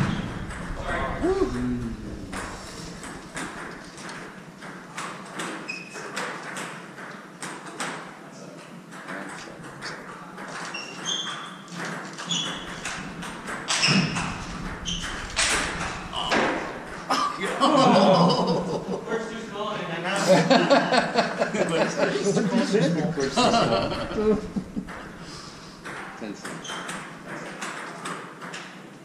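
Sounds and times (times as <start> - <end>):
shoes squeaking on wooden floor: 10.5 - 15.3.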